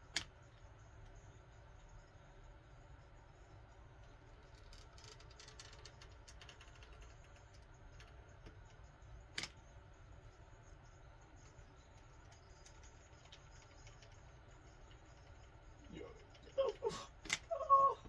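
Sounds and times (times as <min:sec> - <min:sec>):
coil spring clicking and crackling: 0:04.3 - 0:09.6.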